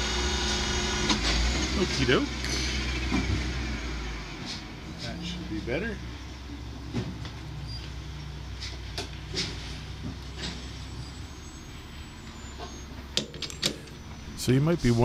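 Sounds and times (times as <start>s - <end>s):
steady low hum: 3.3s - 15.0s.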